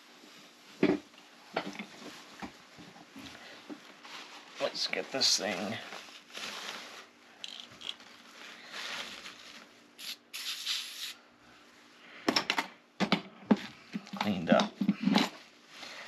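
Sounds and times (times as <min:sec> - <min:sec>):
aerosol spray can hissing: 0:10.0 - 0:11.2.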